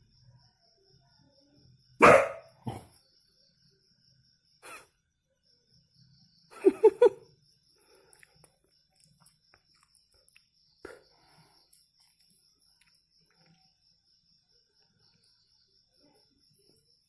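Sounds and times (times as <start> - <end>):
dog barking: 2.0 - 2.9.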